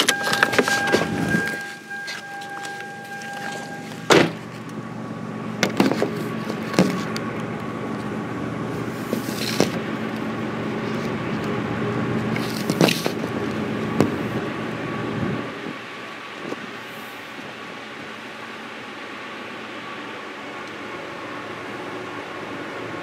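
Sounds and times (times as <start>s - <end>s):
low engine hum: 0.0s - 23.0s
small knocks and scrapes: 5.6s - 7.2s, 9.0s - 9.8s, 12.4s - 13.3s.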